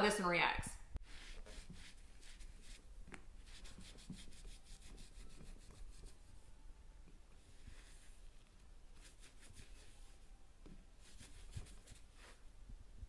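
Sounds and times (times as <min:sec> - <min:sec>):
damp cloth wiping countertop: 0:01.0 - 0:06.4, 0:11.0 - 0:12.5.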